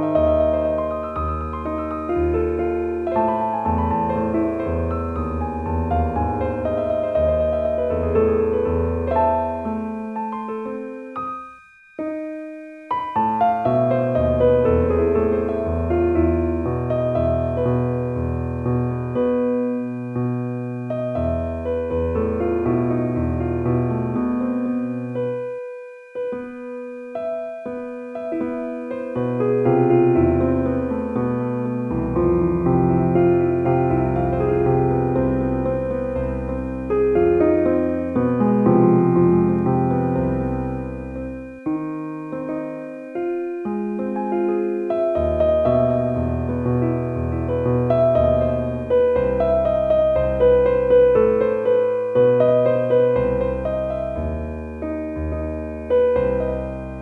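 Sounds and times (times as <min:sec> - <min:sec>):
relaxing piano music: 0:00.0 - 0:57.0.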